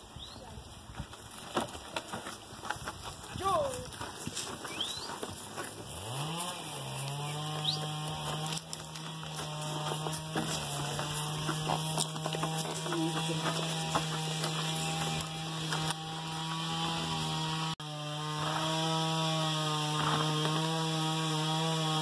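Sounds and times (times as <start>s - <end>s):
small motor droning hum: 5.4s - 22.0s.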